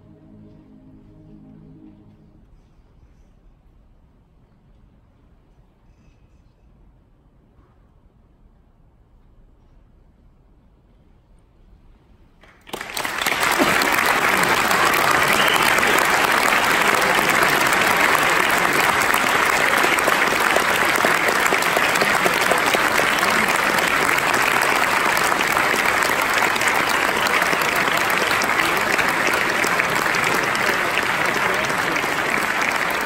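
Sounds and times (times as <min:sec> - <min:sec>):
audience applause: 0:12.4 - 0:33.0.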